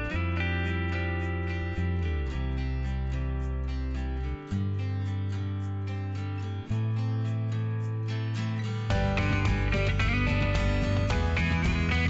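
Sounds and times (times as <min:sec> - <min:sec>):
strummed acoustic guitar music: 0:00.0 - 0:12.0.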